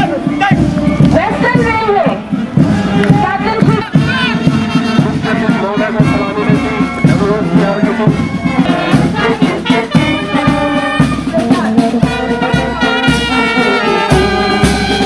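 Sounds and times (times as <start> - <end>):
marching brass band playing: 0.0 - 15.0.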